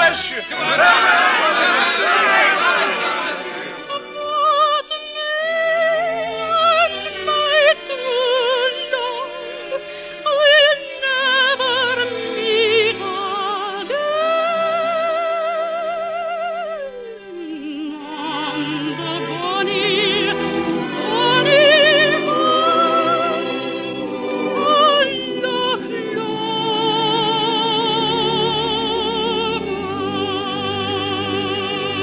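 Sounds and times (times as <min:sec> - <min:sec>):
operatic singing with vibrato: 0:00.0 - 0:32.0.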